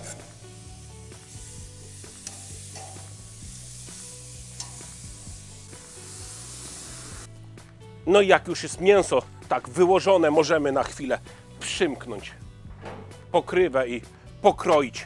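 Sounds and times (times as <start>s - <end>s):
meat sizzling on a grill: 0.0s - 7.3s
metal tongs clicking: 2.2s - 3.1s, 4.6s - 4.9s.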